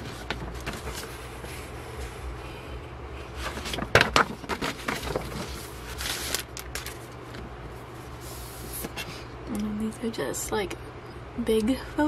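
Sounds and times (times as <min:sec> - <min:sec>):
paper and plastic rustling: 0:00.0 - 0:02.2, 0:03.2 - 0:09.2.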